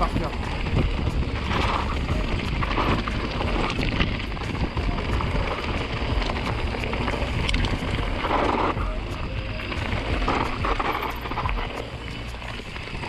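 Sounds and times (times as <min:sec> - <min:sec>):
bike clicks and knocks: 0:00.0 - 0:13.0
tyre rumble: 0:00.0 - 0:13.0
wind rushing over microphone: 0:00.0 - 0:13.0.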